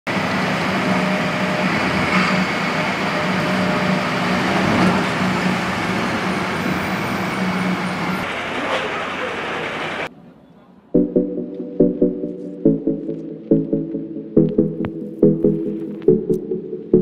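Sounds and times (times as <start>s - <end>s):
rush of vehicles: 0.1s - 10.2s.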